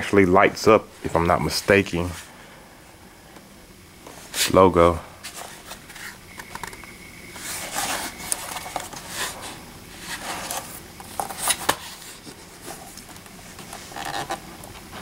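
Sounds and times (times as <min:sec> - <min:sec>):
laptop case rubbing and scraping: 0:07.3 - 0:12.9, 0:13.5 - 0:15.0.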